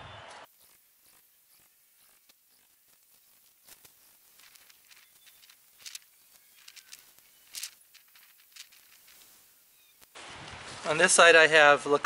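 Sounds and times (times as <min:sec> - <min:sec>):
plastic bag rustling and crinkling: 0:02.9 - 0:11.3.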